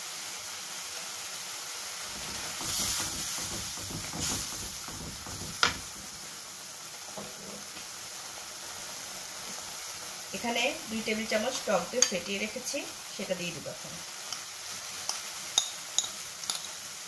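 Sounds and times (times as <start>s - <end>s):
paste sizzling in a frying pan: 0.0s - 17.0s
wooden spatula scraping a pan: 2.1s - 6.1s
sharp knock: 2.1s - 6.2s.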